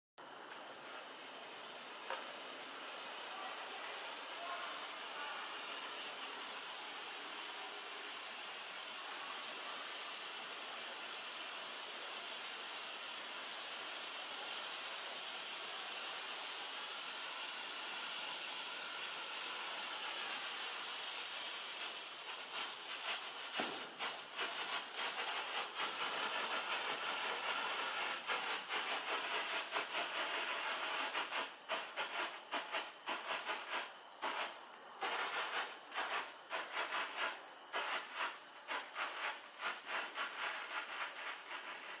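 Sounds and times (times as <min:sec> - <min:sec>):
crickets trilling: 0:00.2 - 0:42.0
flare burning with hiss: 0:18.3 - 0:42.0.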